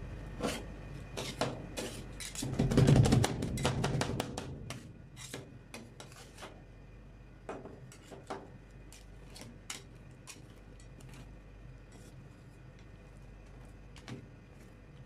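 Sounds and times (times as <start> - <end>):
metal spatulas scraping steel plate: 1.2 - 2.5, 4.7 - 5.4.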